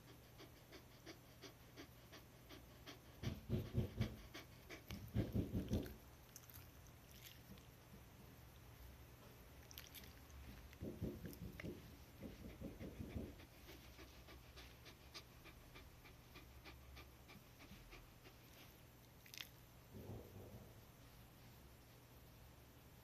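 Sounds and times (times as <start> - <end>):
dog panting: 0.0 - 6.0, 10.5 - 18.8.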